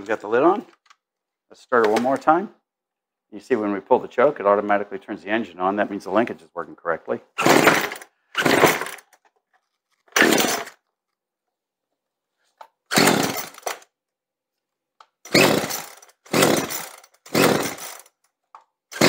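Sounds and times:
chainsaw engine running: 7.4s - 9.0s, 10.2s - 10.7s, 12.9s - 13.8s, 15.3s - 18.1s
chainsaw recoil starter pulls: 7.4s - 10.8s, 12.9s - 13.9s, 15.2s - 18.3s.

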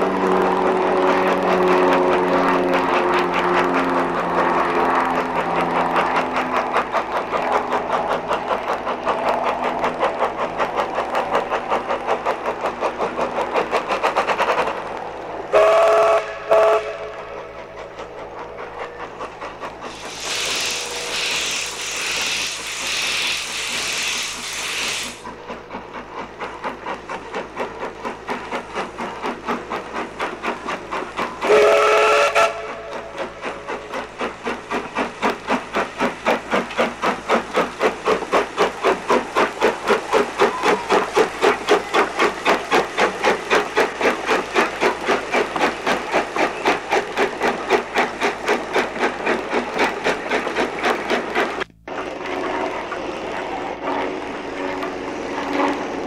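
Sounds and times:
steam locomotive exhaust beats: 0.0s - 56.0s
steam whistle blast: 15.5s - 17.2s, 31.4s - 33.0s
steam hissing: 15.5s - 56.0s.

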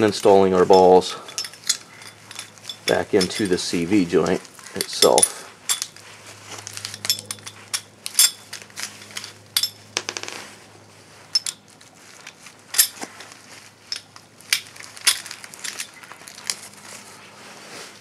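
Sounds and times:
steel balls clicking metallically: 0.0s - 6.0s, 6.8s - 10.2s.

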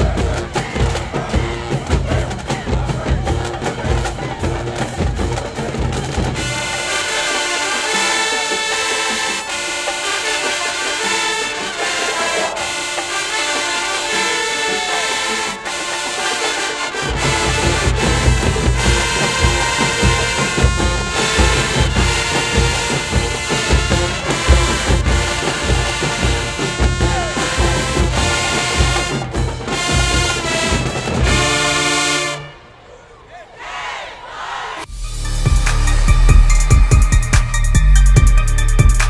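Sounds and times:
heavy low drum beat: 0.0s - 6.5s, 17.1s - 31.6s, 34.9s - 39.0s
marching band brass: 0.0s - 34.9s.

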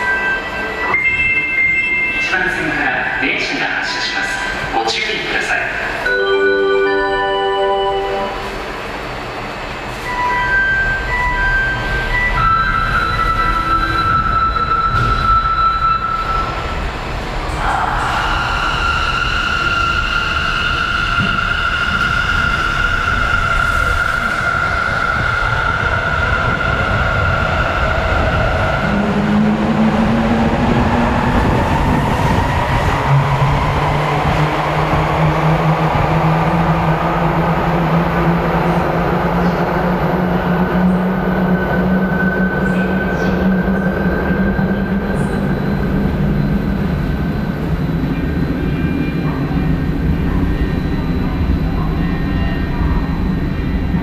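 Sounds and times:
train running hum and rumble: 0.0s - 54.0s.

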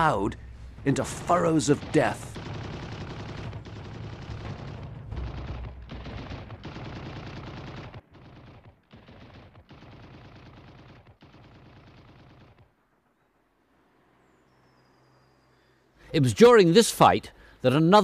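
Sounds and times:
low rumble: 0.0s - 6.6s
machine-gun fire: 0.9s - 13.1s.

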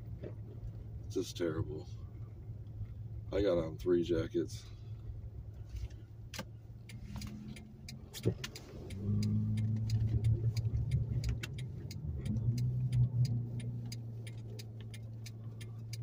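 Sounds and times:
car engine and road hum: 0.0s - 16.0s
light ticks: 6.3s - 16.0s.

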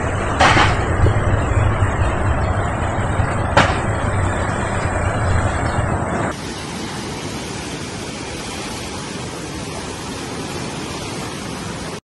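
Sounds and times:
floodwater rushing: 0.0s - 12.0s.

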